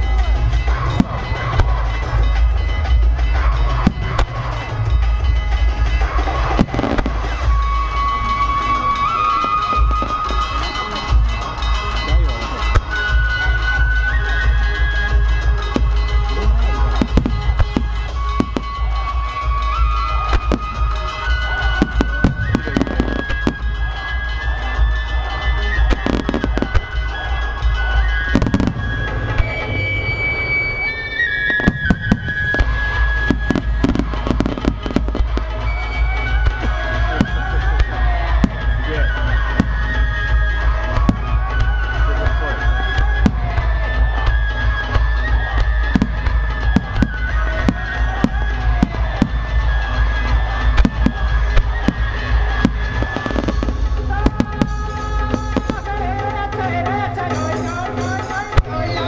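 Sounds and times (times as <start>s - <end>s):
music with long held notes: 0.0s - 59.0s.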